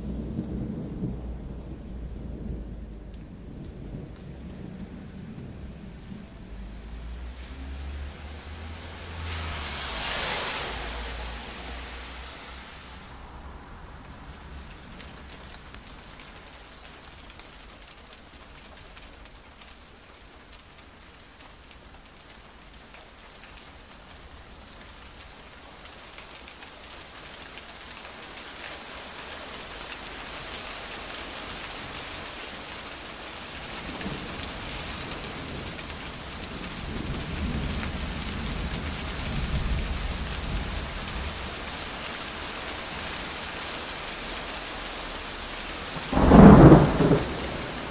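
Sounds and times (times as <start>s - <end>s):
thunder rumbling: 0.0s - 15.8s, 46.0s - 47.9s
rain falling: 0.0s - 47.9s.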